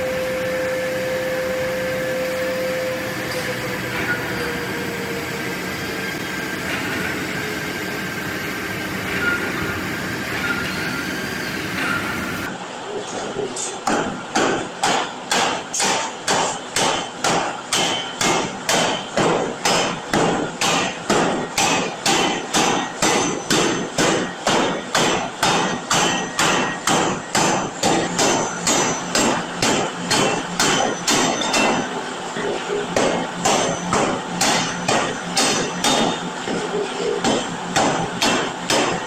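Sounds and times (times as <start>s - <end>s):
power hammer pounding steel: 13.8s - 39.0s.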